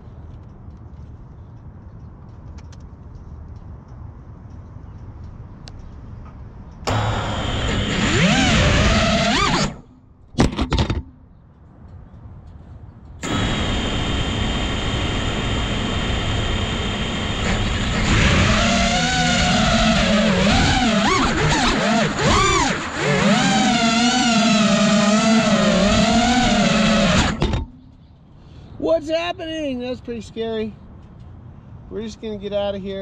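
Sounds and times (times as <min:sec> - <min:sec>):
drone motors whirring: 0:06.9 - 0:11.0, 0:13.2 - 0:28.0.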